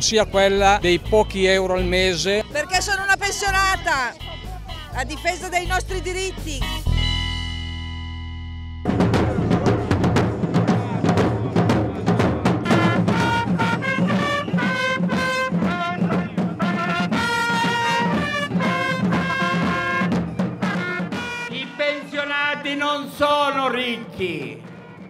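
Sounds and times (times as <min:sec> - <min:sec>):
drums beating march rhythm: 0:00.0 - 0:06.9, 0:08.9 - 0:25.0
trumpets playing fanfare: 0:01.2 - 0:06.9, 0:12.6 - 0:23.8.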